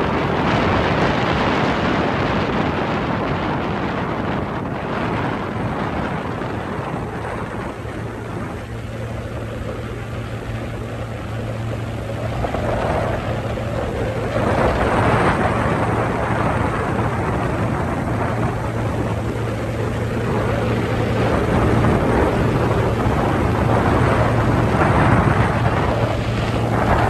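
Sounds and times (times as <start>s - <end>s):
motorboat engine humming: 0.0s - 27.0s
rushing noise: 0.0s - 27.0s.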